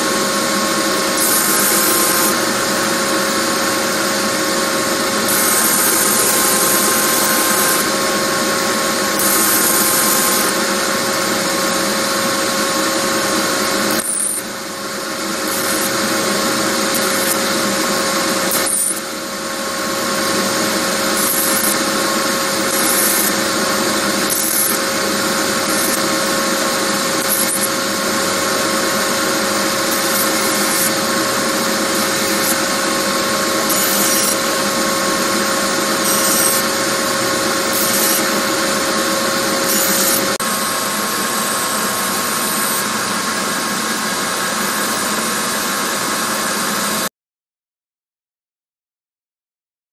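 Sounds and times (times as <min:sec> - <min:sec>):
belt grinder motor hum: 0:00.0 - 0:45.5
knife blade grinding hiss: 0:15.4 - 0:16.0, 0:16.8 - 0:19.1, 0:21.1 - 0:21.8, 0:22.6 - 0:23.4, 0:24.3 - 0:24.8, 0:25.6 - 0:26.1, 0:27.2 - 0:27.8, 0:29.8 - 0:33.0, 0:33.6 - 0:34.6, 0:35.9 - 0:36.8, 0:37.6 - 0:38.8, 0:39.6 - 0:40.4.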